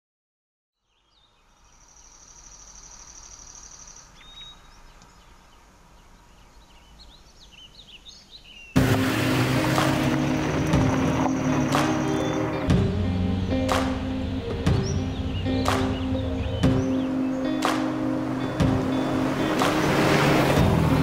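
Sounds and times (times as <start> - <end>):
birds chirping: 0.8 - 21.0
loud background music: 8.8 - 21.0.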